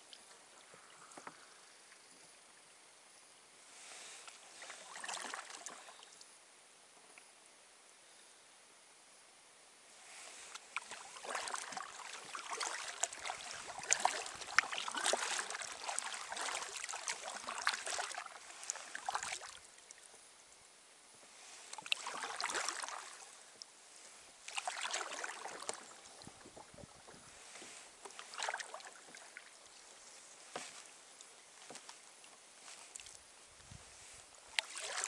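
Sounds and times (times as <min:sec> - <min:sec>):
paddle splashing water: 0:03.9 - 0:06.2, 0:10.1 - 0:20.2, 0:21.4 - 0:35.0.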